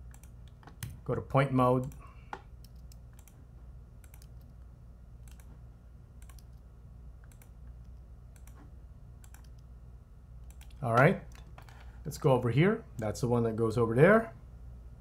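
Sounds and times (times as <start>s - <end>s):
low steady hum: 0.0s - 15.0s
computer mouse and keyboard clicks: 4.0s - 4.6s, 5.2s - 5.6s, 6.2s - 6.6s, 7.2s - 9.7s, 10.4s - 11.9s.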